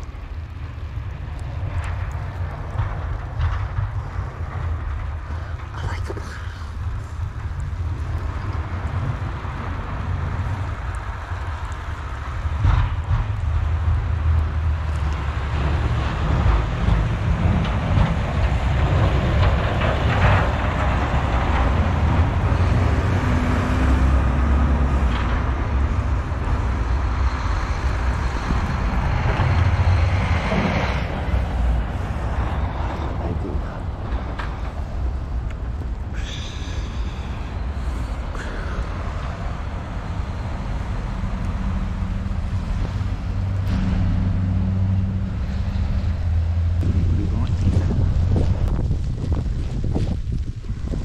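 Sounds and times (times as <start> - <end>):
passing traffic: 0.0 - 51.0
snowplow truck rumbling: 0.0 - 51.0.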